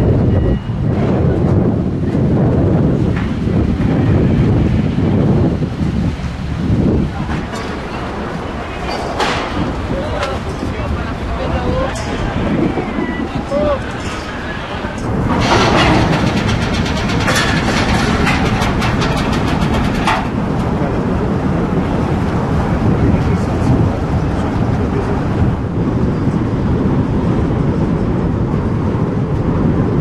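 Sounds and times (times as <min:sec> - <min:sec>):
low rumble of ship machinery: 0:00.0 - 0:30.0
rapid metallic clatter: 0:15.0 - 0:20.7.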